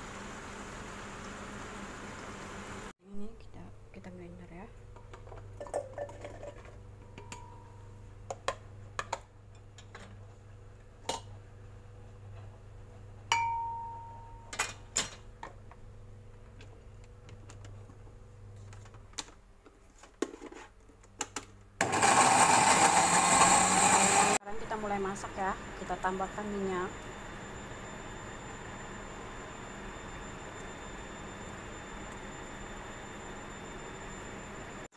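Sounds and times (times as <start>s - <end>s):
electric blender running: 21.8s - 24.4s.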